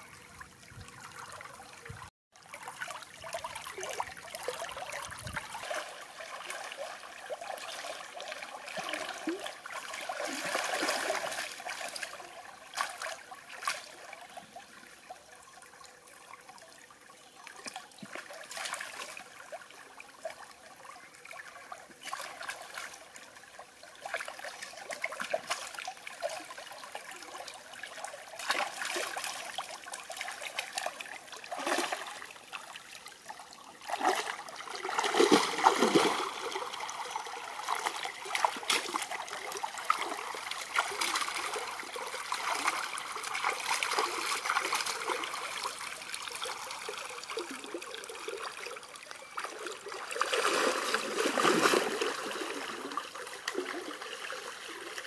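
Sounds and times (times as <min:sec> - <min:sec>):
stream water trickling: 0:00.0 - 0:55.0
splashes of person wading: 0:02.4 - 0:13.9, 0:28.4 - 0:32.8, 0:33.8 - 0:47.8, 0:49.4 - 0:55.0.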